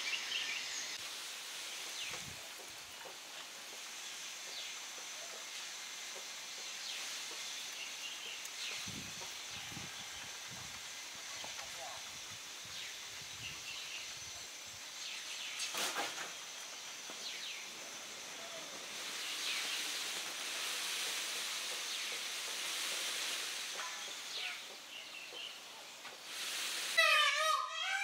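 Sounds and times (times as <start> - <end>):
steady high hiss: 0.0 - 28.0
rustling burst: 15.6 - 24.6, 26.2 - 27.6.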